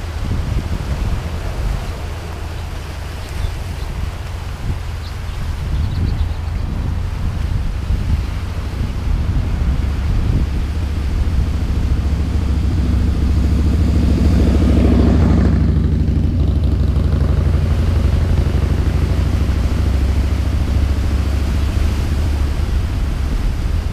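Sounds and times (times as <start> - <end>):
wind rumble on microphone: 0.0 - 23.9
motorcycle passing by: 5.7 - 23.9.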